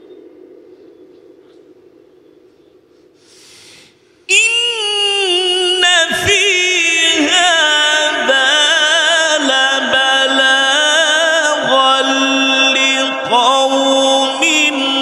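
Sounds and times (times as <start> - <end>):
breathy hiss: 2.9 - 4.3
man reciting melodically: 4.3 - 15.0.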